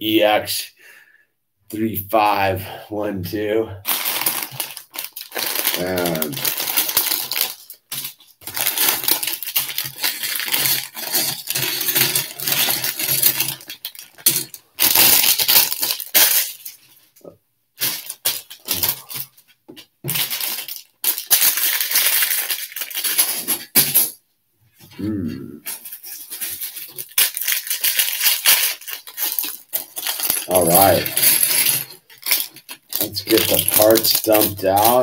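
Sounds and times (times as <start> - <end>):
plastic bags crinkling: 3.8 - 17.1, 17.8 - 24.1, 25.6 - 35.0
plastic bricks clinking: 3.9 - 16.8, 20.1 - 24.1, 25.7 - 35.0.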